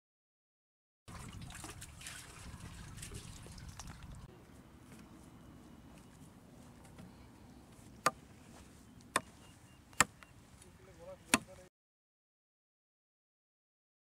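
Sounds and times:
hatchet chopping wooden pole: 8.0s - 8.2s, 9.1s - 9.3s, 9.9s - 10.2s, 11.3s - 11.6s.

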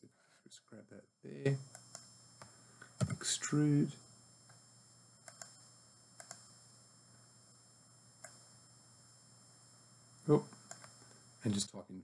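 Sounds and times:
computer mouse clicks: 1.6s - 3.2s, 5.2s - 5.6s, 6.2s - 6.5s, 8.2s - 8.5s, 10.5s - 11.0s.

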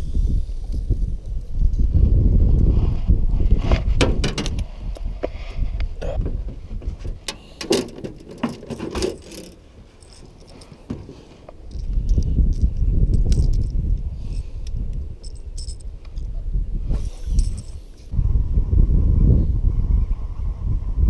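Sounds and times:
wind buffeting microphone: 0.0s - 8.5s, 10.9s - 21.0s
fishing tackle clicking and rattling: 7.2s - 10.8s, 11.6s - 13.8s, 14.9s - 16.3s.

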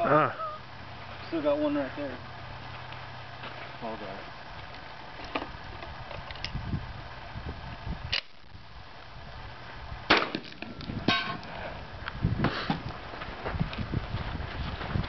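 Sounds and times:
wind on microphone: 5.5s - 15.0s
rifle gunshots: 10.1s - 10.5s
steel target ringing: 11.1s - 11.4s.

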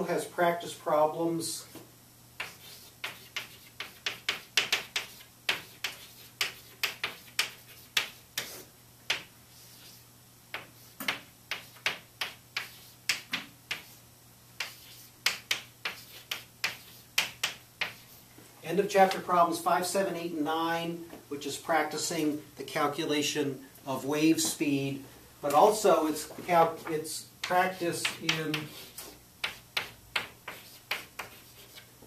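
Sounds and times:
chalk writing on a blackboard: 2.4s - 14.0s, 14.6s - 18.2s, 27.4s - 31.9s.

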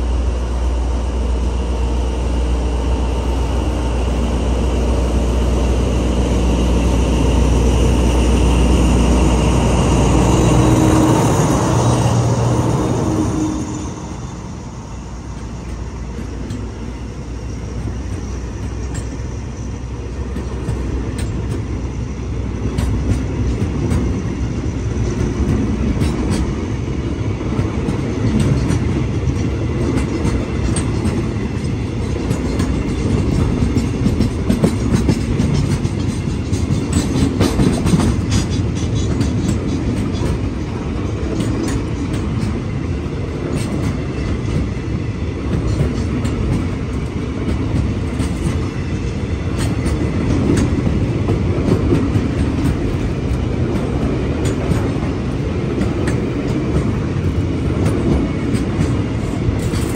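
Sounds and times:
train wheels rumbling on rails: 0.0s - 59.9s
wheels clicking and clacking: 27.6s - 42.6s.

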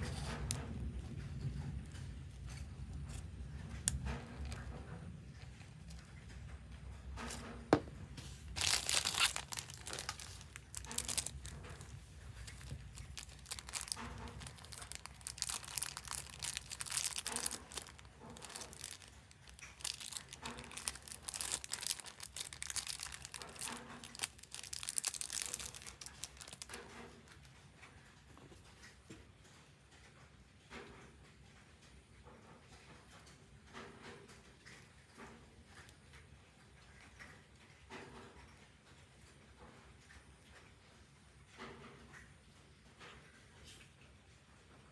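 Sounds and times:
plastic bag crinkling and tearing: 3.7s - 4.7s, 8.4s - 26.9s.

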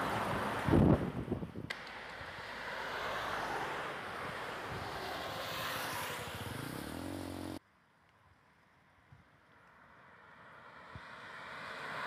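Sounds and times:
vehicles passing on highway: 0.0s - 12.0s.

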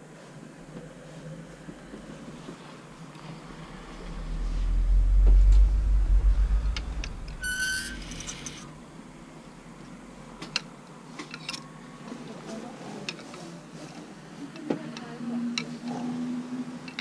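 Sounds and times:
short high squeak: 7.3s - 8.7s.

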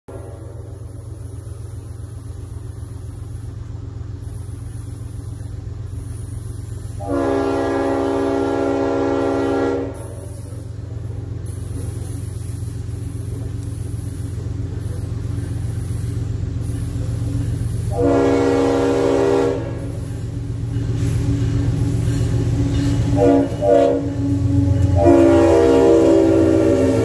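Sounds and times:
low train rumble: 0.0s - 27.0s
train air horn blast: 7.0s - 10.6s, 17.9s - 20.0s, 23.1s - 27.0s.

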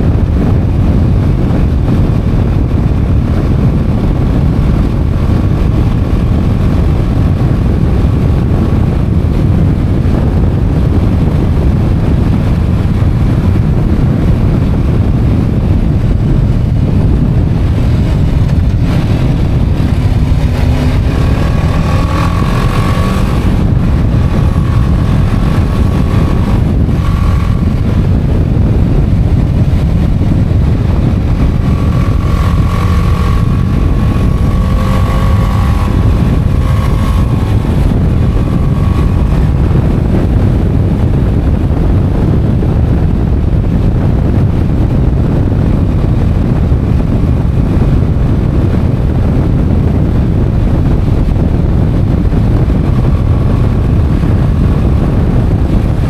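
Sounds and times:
motorcycle engine drone: 0.0s - 56.0s
wind rushing over microphone: 0.0s - 56.0s.

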